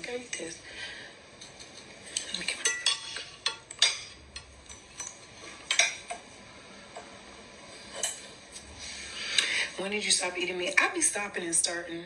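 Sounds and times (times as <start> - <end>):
cutlery clinking against a dish: 1.4 - 6.2, 7.9 - 8.3.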